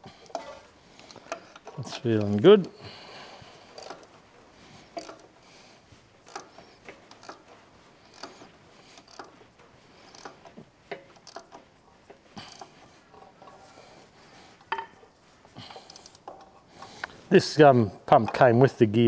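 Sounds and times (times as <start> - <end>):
ratchet wrench clicking: 3.7 - 4.1, 4.9 - 5.3, 6.2 - 7.4, 8.1 - 8.4, 9.0 - 9.4, 10.0 - 10.4, 11.2 - 11.6, 12.5 - 12.7, 15.8 - 16.5.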